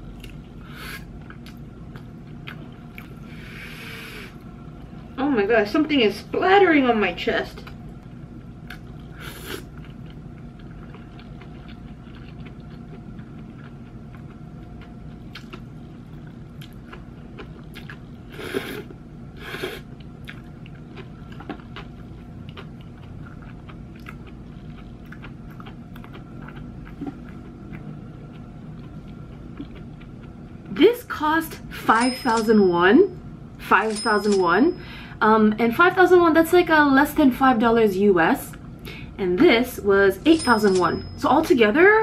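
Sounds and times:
person chewing: 0.2s - 4.5s, 8.4s - 30.4s
person slurping noodles: 9.2s - 9.7s, 18.3s - 19.8s.

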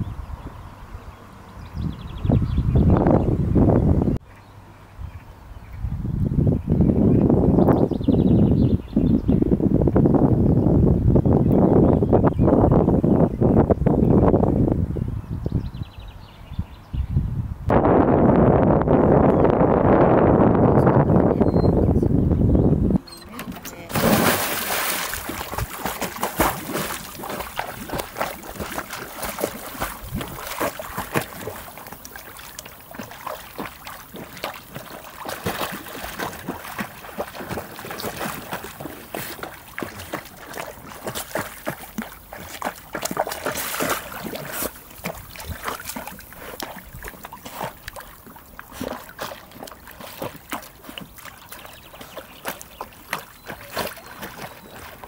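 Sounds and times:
dog paddling splashes: 23.1s - 55.0s.

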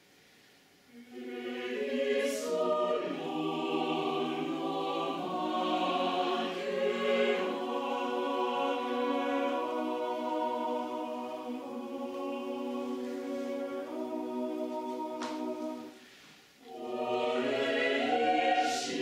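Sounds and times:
mixed choir singing chords: 0.9s - 19.0s.

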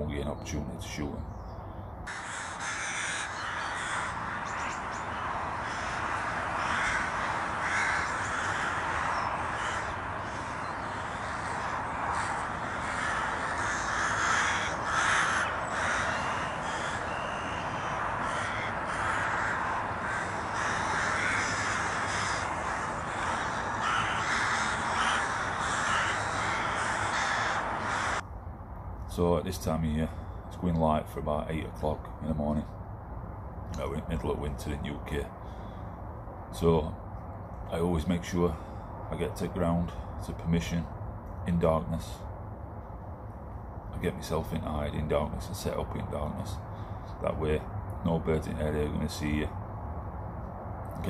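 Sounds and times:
crows cawing: 2.0s - 28.2s, 30.1s - 30.5s, 35.3s - 36.2s, 38.5s - 39.0s, 46.6s - 47.3s.

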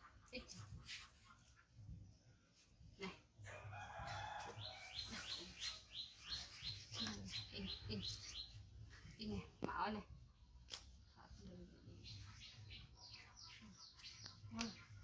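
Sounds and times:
rooster crowing: 3.5s - 5.1s.

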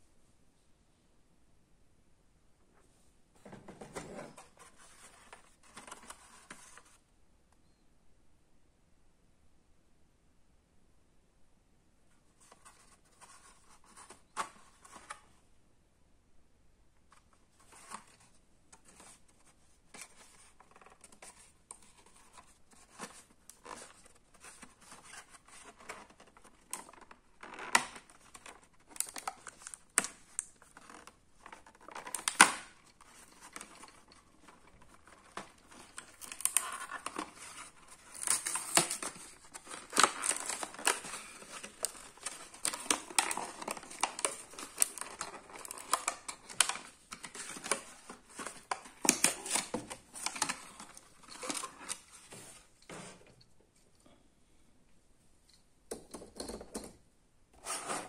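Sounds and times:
plastic packaging crinkling and tearing: 20.0s - 52.2s.

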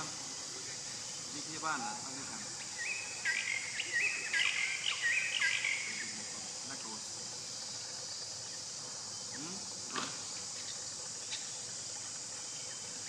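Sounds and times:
insects droning: 0.0s - 13.0s
bird whistled calls: 2.7s - 6.1s.

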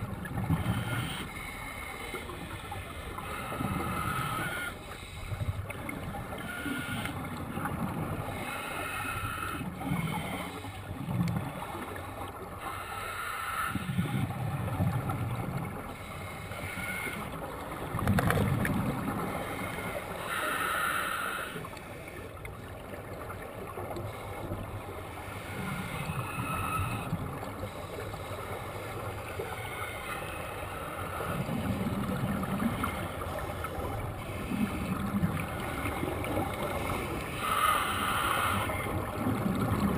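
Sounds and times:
exhaled air bubbling underwater: 0.0s - 39.9s
regulator hiss on inhale: 19.4s - 22.2s.

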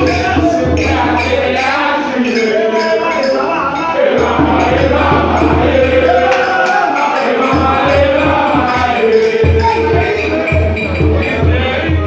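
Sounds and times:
crowd singing and chanting: 0.0s - 12.0s
steady beat: 0.0s - 12.0s.

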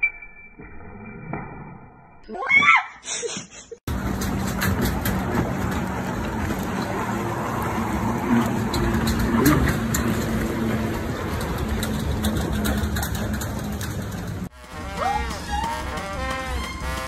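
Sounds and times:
wind: 0.0s - 17.0s
watercraft engine hum: 3.9s - 17.0s.

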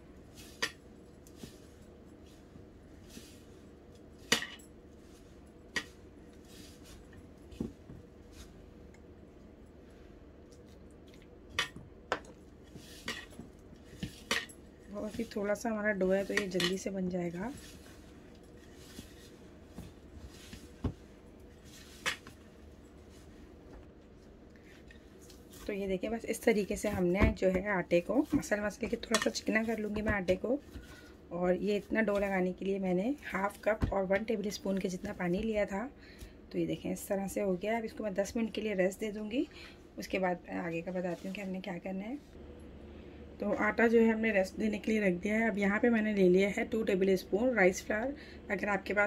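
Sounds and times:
fingers rustling dough: 0.0s - 35.7s.

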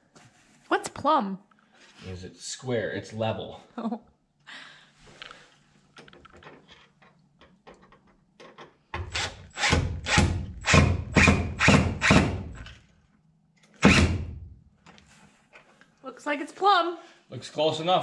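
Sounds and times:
cordless drill driving screw: 9.1s - 12.6s.

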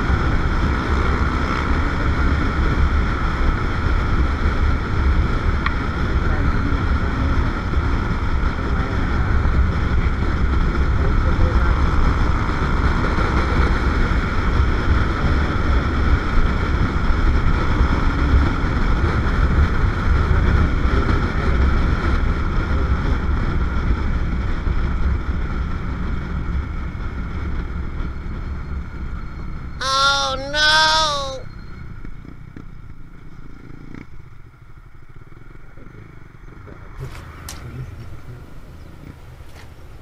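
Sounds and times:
motorcycle engine at speed: 0.0s - 29.7s, 31.8s - 40.0s.

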